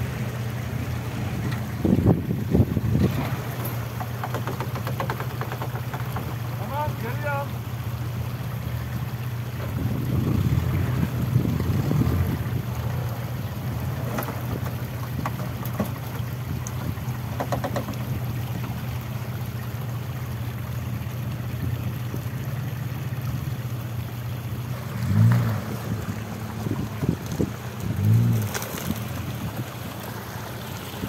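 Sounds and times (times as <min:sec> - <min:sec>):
off-road vehicle engine running: 0:00.0 - 0:31.0
tyres rumbling over rough ground: 0:00.0 - 0:31.0
knocks and rattles: 0:03.0 - 0:06.9, 0:13.9 - 0:18.8.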